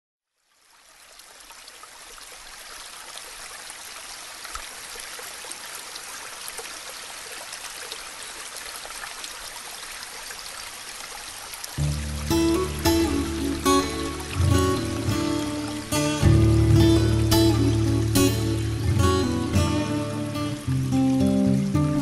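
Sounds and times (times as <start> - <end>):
river water flowing: 0.3 - 22.0.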